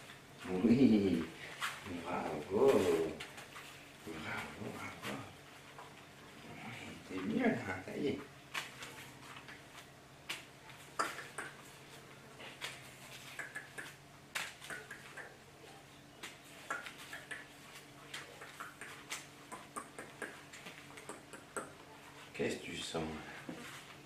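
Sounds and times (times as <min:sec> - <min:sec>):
faint steady hum: 0:00.0 - 0:24.0
puppy scampering: 0:13.1 - 0:14.0, 0:14.6 - 0:15.4, 0:16.6 - 0:22.1
clicks and taps on tile floor: 0:13.3 - 0:15.3, 0:18.1 - 0:21.8.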